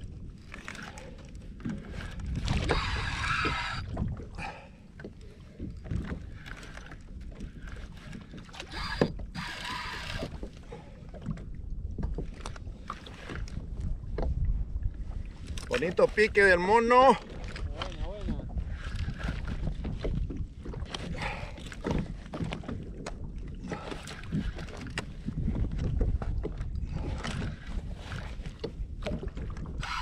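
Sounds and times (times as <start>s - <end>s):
wind rumble on microphone: 0.0s - 30.0s
fishing reel buzzing: 2.6s - 3.9s, 8.6s - 10.5s, 29.8s - 30.0s.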